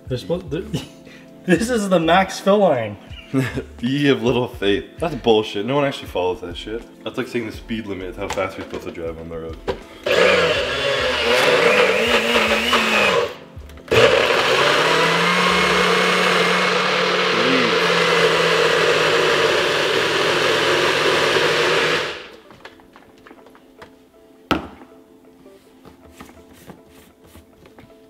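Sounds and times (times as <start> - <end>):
blender running: 10.0 - 22.4.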